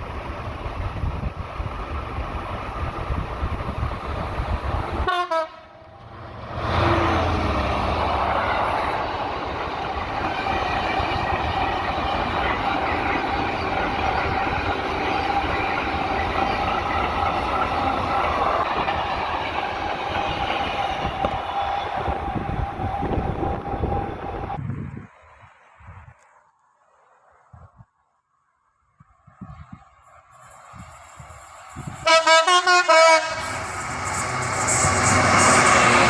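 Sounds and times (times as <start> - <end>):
diesel locomotive engine: 0.0 - 26.1, 29.4 - 36.0
train wagons rumbling and clattering: 5.7 - 24.6, 29.4 - 36.0.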